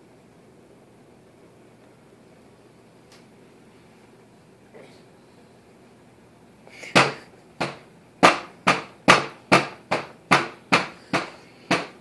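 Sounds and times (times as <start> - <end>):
fork banging on plastic tray: 7.0 - 12.0.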